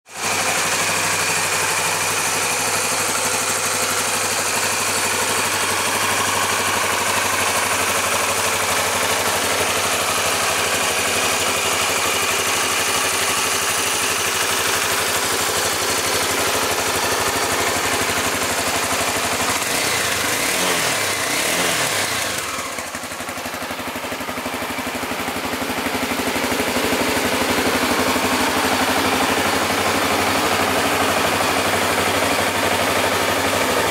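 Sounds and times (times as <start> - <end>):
motorcycle engine idling: 0.1 - 33.9.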